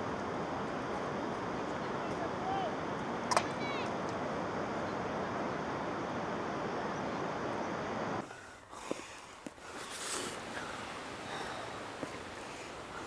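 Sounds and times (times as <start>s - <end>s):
wind: 0.0s - 13.0s.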